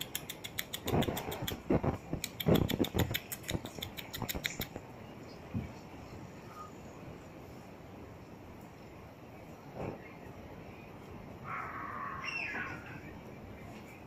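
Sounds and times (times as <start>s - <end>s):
dog claws clicking on tile: 0.0s - 4.8s.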